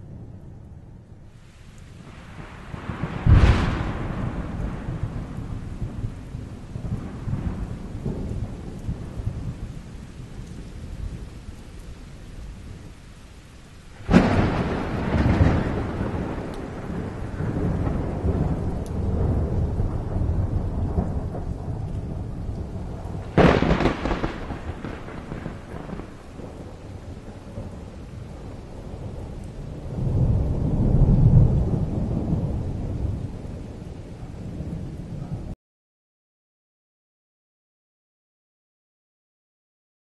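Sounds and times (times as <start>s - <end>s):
rain falling: 0.0s - 35.6s
thunder rumbling: 0.0s - 35.6s
sharp thunderclap: 2.0s - 9.6s, 14.0s - 33.2s.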